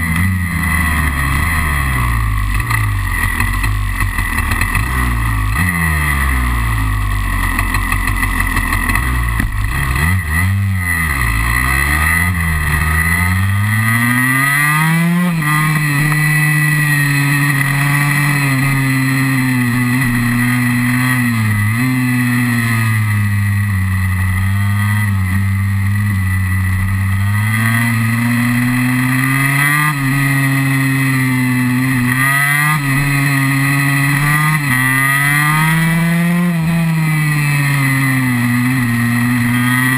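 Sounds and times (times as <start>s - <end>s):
two-stroke engine revving: 0.0s - 39.9s.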